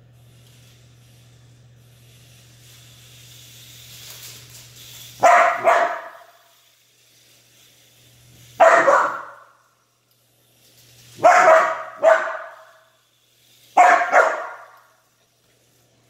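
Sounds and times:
dog barking with echo: 5.2 - 6.3, 8.6 - 9.5, 11.2 - 12.7, 13.8 - 14.8.

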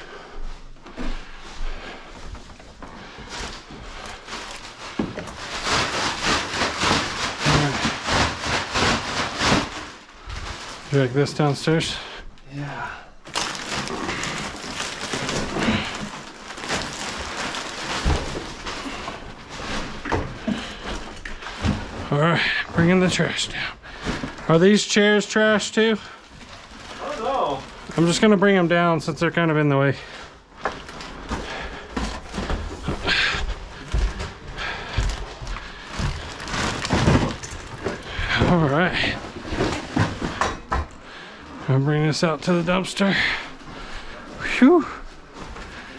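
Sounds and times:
footsteps down stairs: 0.0 - 11.0, 30.0 - 41.7
plastic bag rustling and crinkling: 0.0 - 45.9
chairs knocking and rustling: 13.4 - 24.6, 30.6 - 41.0.

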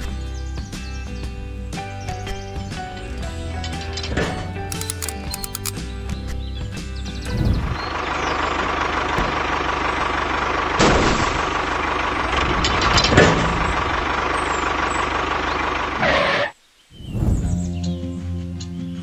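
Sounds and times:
tractor engine running: 0.0 - 16.5
loud engine knocks: 7.2 - 16.0.

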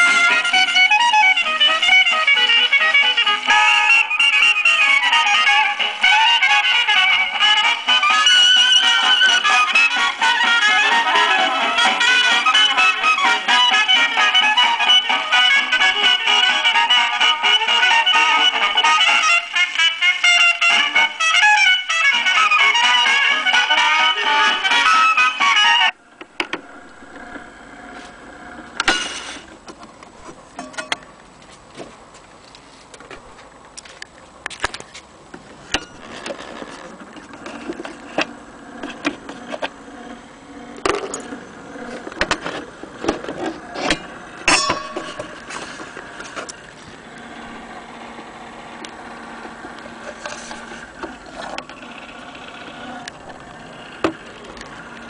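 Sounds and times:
clockwork motor buzzing whir: 0.0 - 29.5, 45.1 - 55.0.

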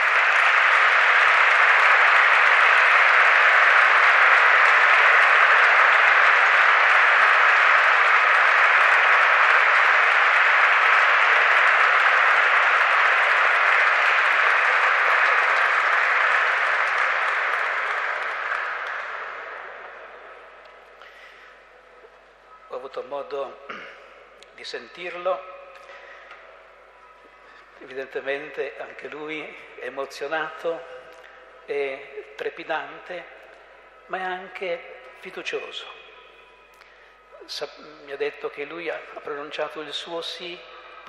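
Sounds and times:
audience applauding: 0.0 - 21.6.

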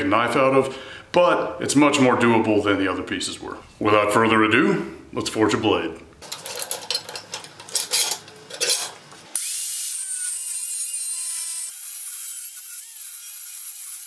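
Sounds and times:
angle grinder cutting steel: 9.4 - 14.0.

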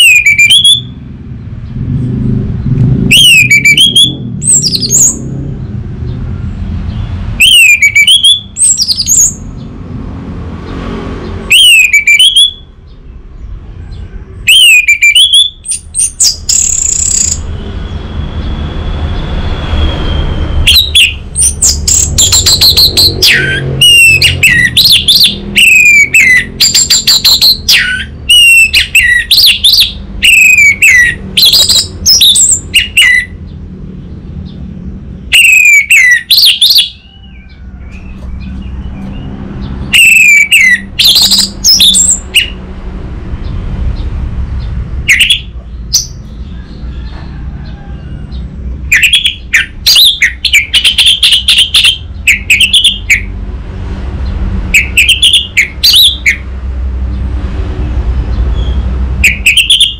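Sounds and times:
thrush singing whistles and trills: 0.0 - 1.1, 3.1 - 5.5, 6.7 - 9.7, 11.4 - 13.2, 13.9 - 33.6, 35.2 - 42.7, 44.6 - 47.3, 48.6 - 53.4, 54.7 - 56.5, 58.5 - 59.9.

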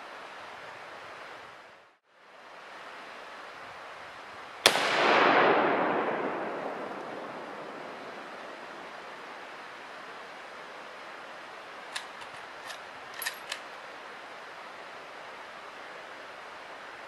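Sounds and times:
rifle shot: 4.6 - 8.6
gunshot echo: 4.7 - 8.8.

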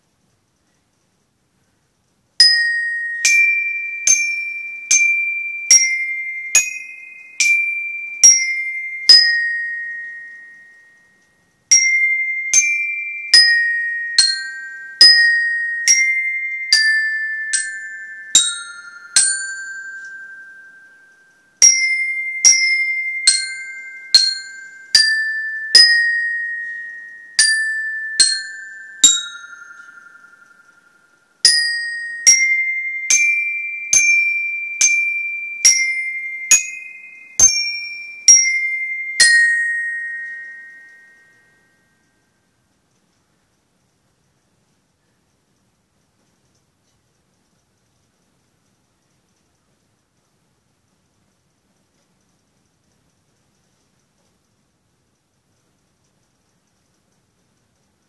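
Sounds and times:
glockenspiel melody: 2.4 - 42.3.

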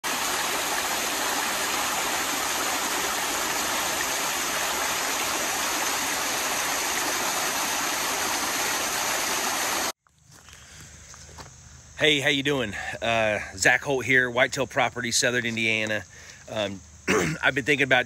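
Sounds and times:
creek rushing: 0.0 - 9.9
small waterfall: 0.0 - 10.0.

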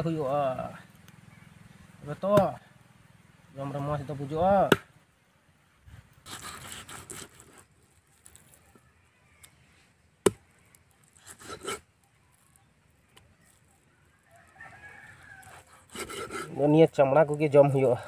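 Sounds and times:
knife chopping into wood: 2.3 - 2.6, 4.6 - 4.9, 10.2 - 10.4.

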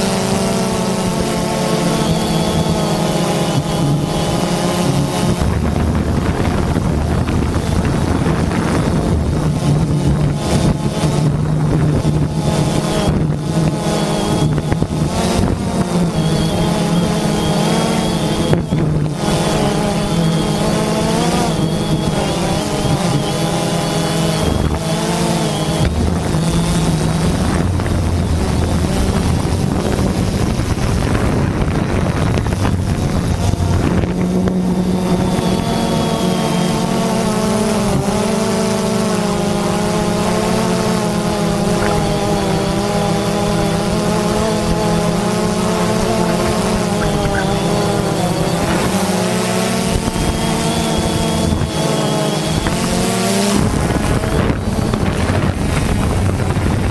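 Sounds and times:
drone motors buzzing whine: 0.0 - 56.9
wind buffeting microphone: 0.0 - 56.9.

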